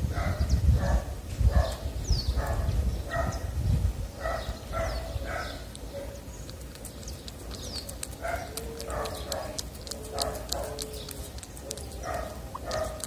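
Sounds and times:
cat chewing wet food: 5.6s - 13.0s
quick clicks: 5.7s - 13.0s.

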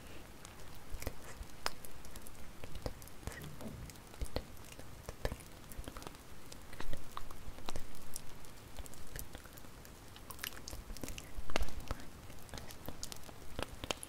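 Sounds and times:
wood fire crackling: 0.0s - 14.0s
low steady rumble: 2.4s - 7.6s.

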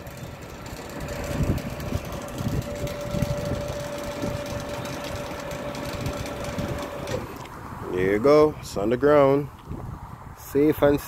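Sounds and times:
hydraulic lift whining: 0.0s - 7.6s.

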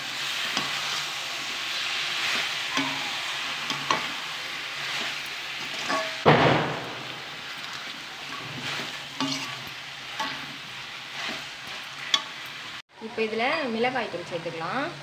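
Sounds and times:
ladle stirring and scraping: 0.0s - 6.2s, 7.2s - 12.7s
chicken sizzling in a pan: 0.0s - 12.8s.

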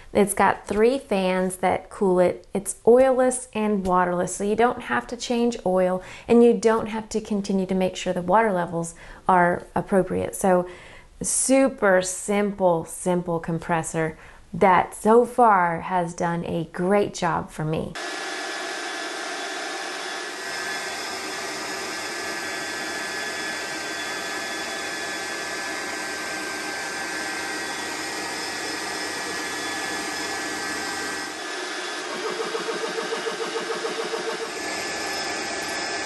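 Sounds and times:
air compressor running: 18.0s - 36.0s.

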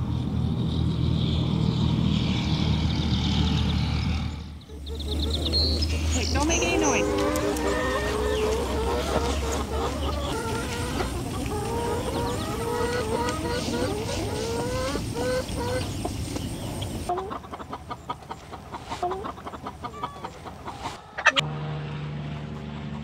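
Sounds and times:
chickens clucking: 4.6s - 21.4s.

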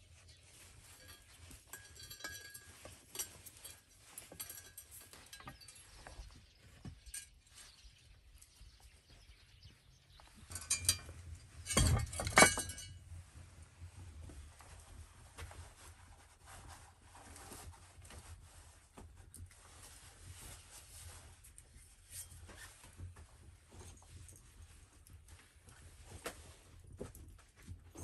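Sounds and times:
wire rustling: 0.0s - 8.7s, 10.2s - 13.0s
light metal clinks: 0.6s - 8.7s, 10.3s - 13.0s.

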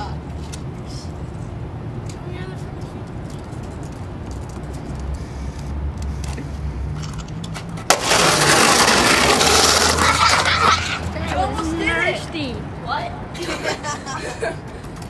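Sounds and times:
skateboard wheels rolling on asphalt: 2.2s - 12.5s
skateboard rumbling: 7.0s - 12.3s
skateboard clack: 7.8s - 11.7s.

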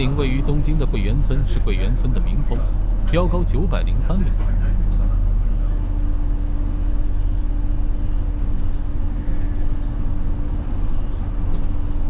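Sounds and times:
bus engine drone: 0.0s - 12.0s
road noise: 0.0s - 12.0s
steady hum: 0.0s - 12.0s.

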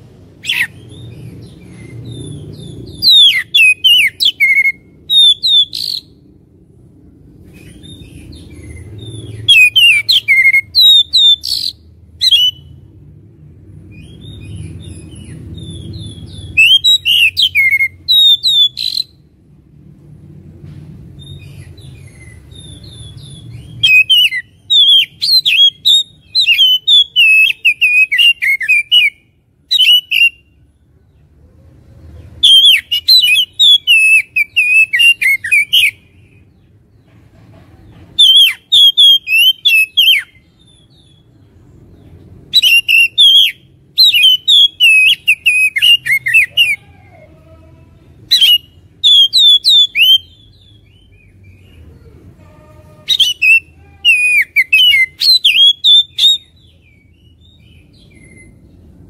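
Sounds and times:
bird singing whistles and chatter: 0.4s - 6.1s, 7.6s - 12.7s, 14.0s - 19.2s, 21.2s - 30.4s, 32.4s - 36.1s, 38.2s - 41.3s, 42.5s - 46.8s, 48.3s - 51.7s, 53.0s - 58.6s.

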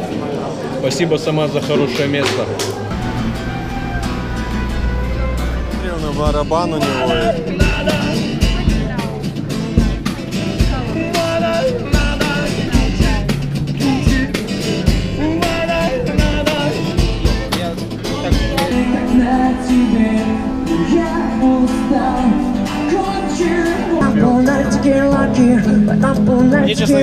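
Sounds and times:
acoustic guitar strumming: 2.8s - 27.0s
bass drum beat: 3.0s - 19.4s, 24.0s - 27.0s
person singing: 6.7s - 9.2s, 10.6s - 27.0s.

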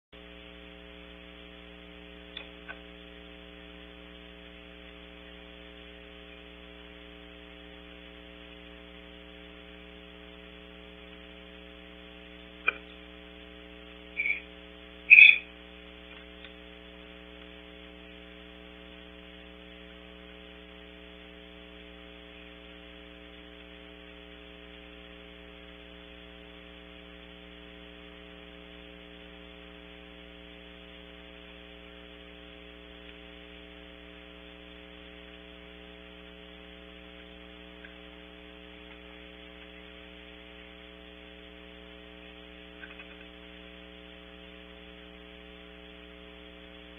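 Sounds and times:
mains hum: 0.1s - 46.9s
faint ticks: 37.1s - 38.1s.

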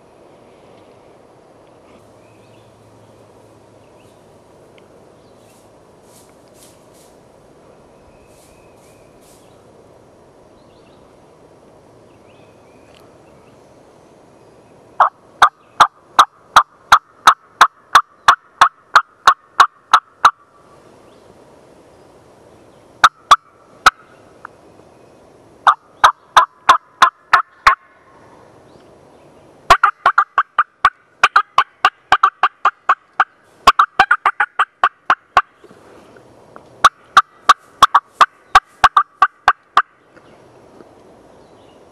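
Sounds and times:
turkey yelps: 15.0s - 20.4s, 29.7s - 35.5s
distant turkey gobbling: 15.0s - 20.6s, 23.0s - 24.3s, 25.6s - 28.1s, 29.7s - 35.7s, 36.8s - 40.0s.

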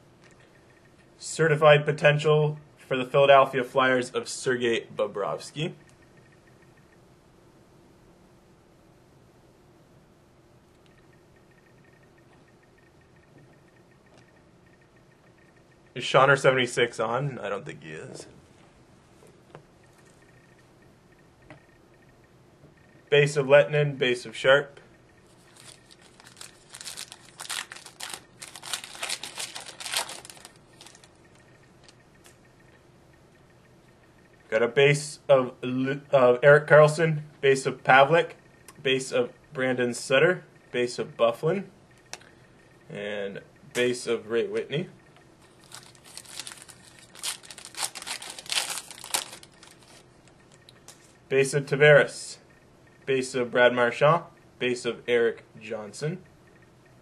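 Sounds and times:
foil wrapper crinkling: 25.4s - 31.2s, 45.5s - 50.0s.

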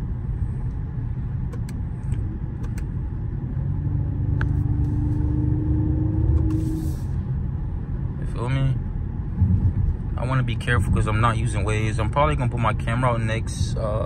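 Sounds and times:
car interior road drone: 0.0s - 14.0s.

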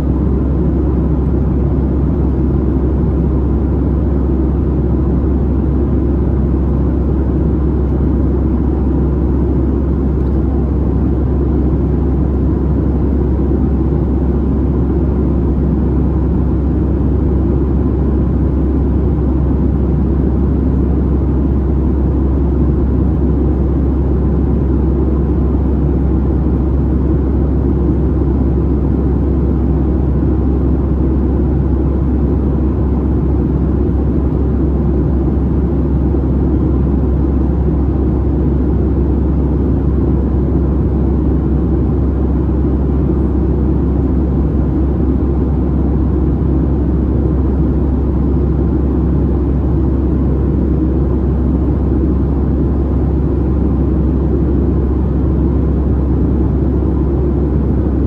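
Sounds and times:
jet engines in flight: 0.0s - 58.0s.

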